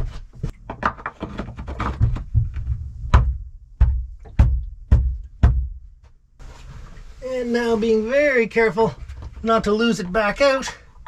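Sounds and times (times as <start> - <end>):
knocks through wooden hull: 0.7 - 5.8.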